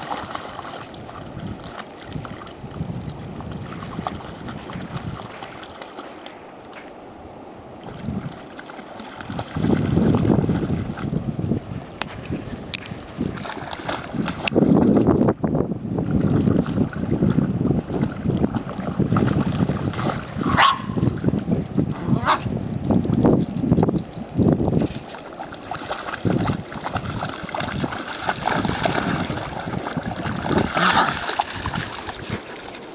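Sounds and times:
wind rumble on microphone: 0.0s - 5.7s, 7.2s - 32.9s
water splashing: 0.0s - 7.1s, 7.7s - 15.3s, 16.0s - 32.9s
dogs barking and yipping: 20.4s - 21.0s.

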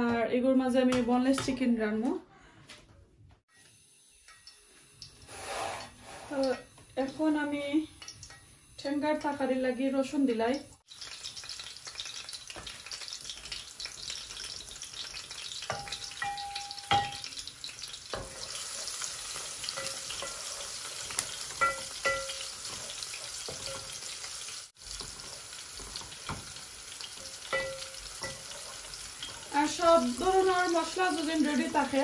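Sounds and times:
garlic sizzling in oil: 3.5s - 32.0s
wooden spoon knocking steel pot: 15.7s - 17.3s, 21.6s - 22.5s, 27.5s - 28.5s.

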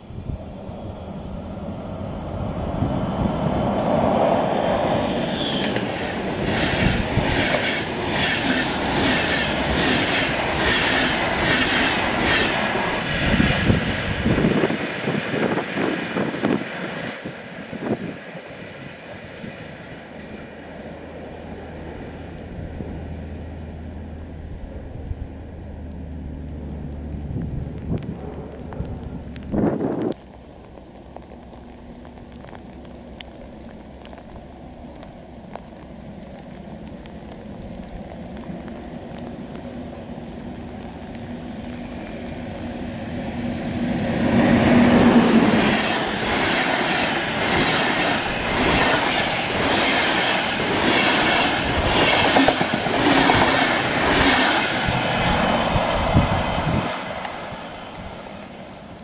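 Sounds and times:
locomotive hum: 36.7s - 59.0s.

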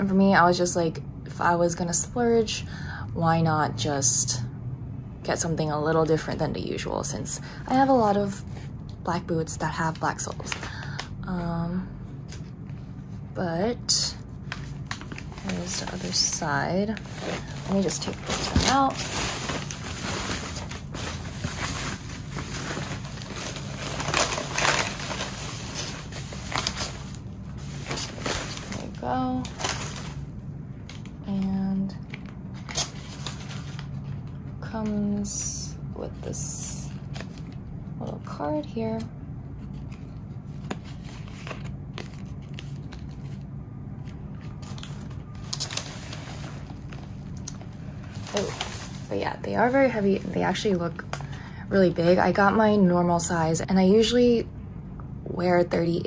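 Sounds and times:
tissue paper rustling and crinkling: 13.9s - 30.3s, 32.6s - 34.3s, 44.0s - 51.3s.

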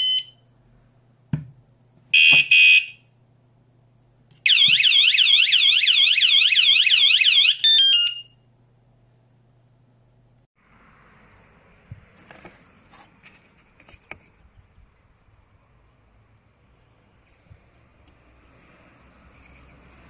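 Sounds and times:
alarm beeps and chirps: 2.2s - 3.0s.

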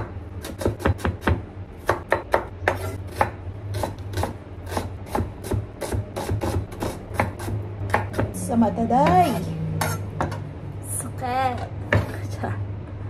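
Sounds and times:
knife chopping on wooden board: 0.0s - 8.4s
knife blade scraping: 2.7s - 3.2s, 9.3s - 10.1s.

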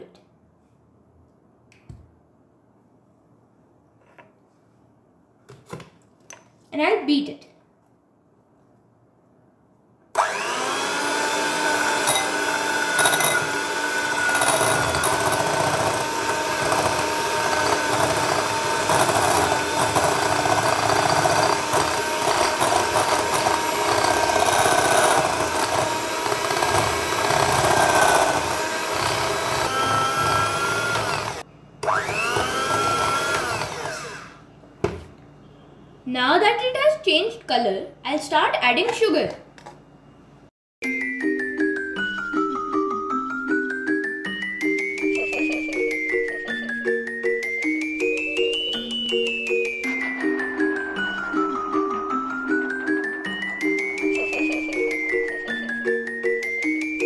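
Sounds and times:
electric hand mixer whining: 10.2s - 34.4s.

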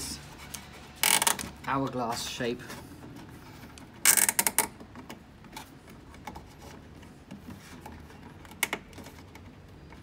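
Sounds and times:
rubbing and handling: 0.0s - 4.1s, 5.1s - 10.0s.

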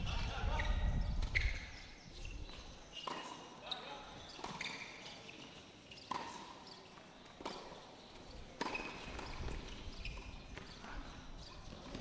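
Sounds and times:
tennis ball struck by rackets: 6.1s - 6.6s, 8.5s - 10.7s.

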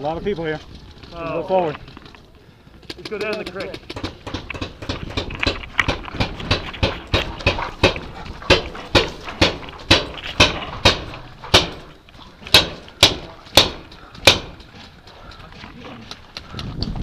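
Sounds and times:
footsteps in metal pipe: 3.2s - 16.8s.

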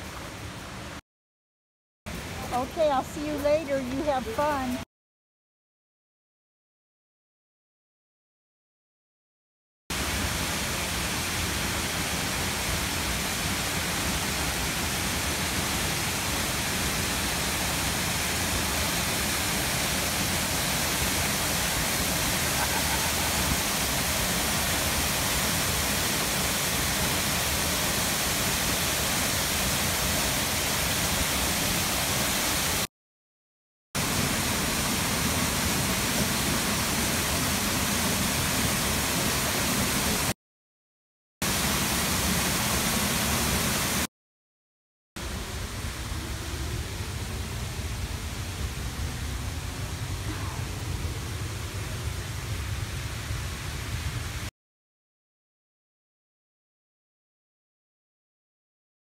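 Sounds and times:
waterfall rushing: 10.0s - 32.9s, 34.0s - 40.3s, 41.4s - 44.1s.

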